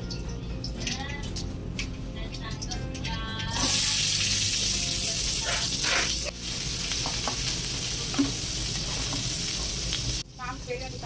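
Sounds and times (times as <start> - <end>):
onions sizzling in hot oil: 0.2 - 11.0
ladle scraping pan: 5.3 - 6.3.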